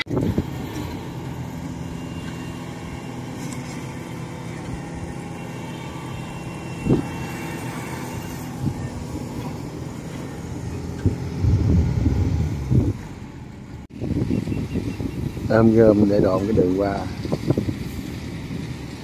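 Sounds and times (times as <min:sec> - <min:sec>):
diesel engine running: 0:00.0 - 0:19.0
low thumps: 0:10.7 - 0:13.1.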